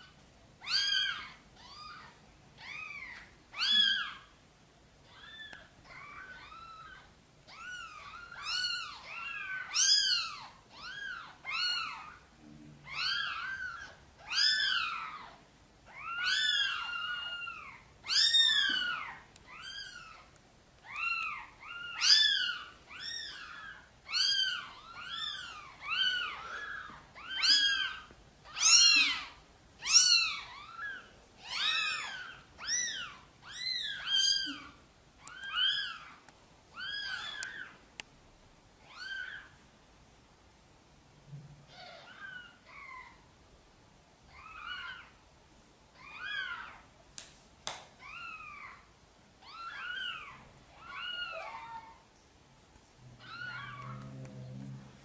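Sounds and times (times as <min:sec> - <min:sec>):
cats mewing: 0:00.6 - 0:04.3, 0:05.0 - 0:37.8, 0:44.3 - 0:45.2, 0:48.0 - 0:52.1, 0:53.0 - 0:55.0.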